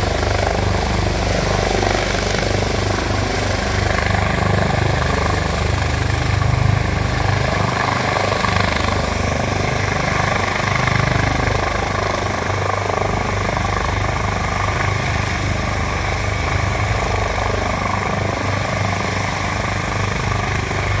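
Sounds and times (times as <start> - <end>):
high turbine whine: 0.0 - 7.0, 15.4 - 21.0
helicopter rotor beat: 0.0 - 21.0.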